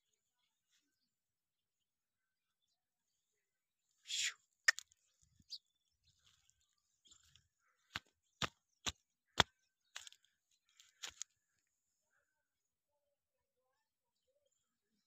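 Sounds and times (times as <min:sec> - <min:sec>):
footsteps crunching dry grass: 0:10.0 - 0:11.3.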